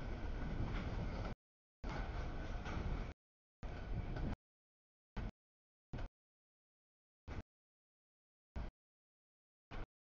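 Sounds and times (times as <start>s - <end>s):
freight train cars rolling on rails: 0.0s - 4.4s.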